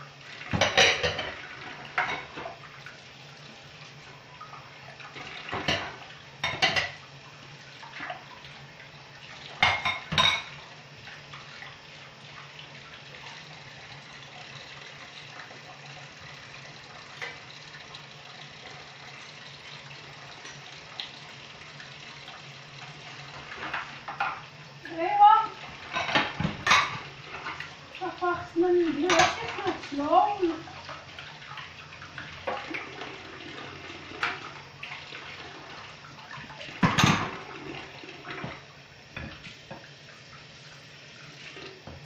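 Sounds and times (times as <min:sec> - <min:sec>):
dishes and pots clattering: 0:00.5 - 0:02.6, 0:05.2 - 0:07.0, 0:09.6 - 0:10.6, 0:23.4 - 0:24.4, 0:25.7 - 0:27.7, 0:29.0 - 0:29.9, 0:34.1 - 0:34.6, 0:36.8 - 0:37.5
tap running into a sink: 0:00.5 - 0:02.6, 0:25.8 - 0:27.7, 0:36.3 - 0:37.6, 0:38.2 - 0:40.0, 0:41.5 - 0:42.0.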